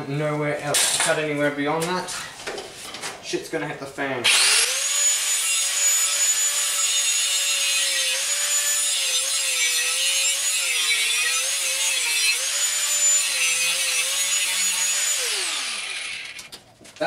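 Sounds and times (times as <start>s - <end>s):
angle grinder cutting steel: 4.3s - 16.5s.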